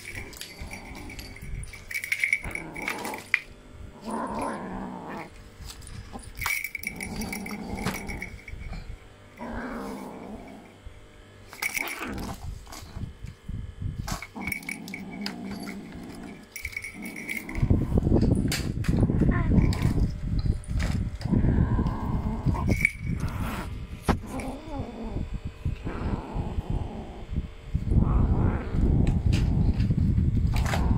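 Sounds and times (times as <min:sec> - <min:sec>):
kitten growling: 0:00.0 - 0:01.7, 0:03.9 - 0:05.3, 0:09.4 - 0:10.8, 0:21.2 - 0:29.9.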